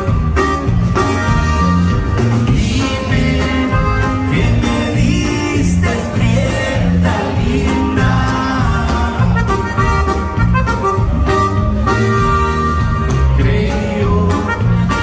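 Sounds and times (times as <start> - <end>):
button accordion: 0.0 - 15.0
live band playing: 0.0 - 15.0
person singing: 2.5 - 10.0, 13.1 - 15.0.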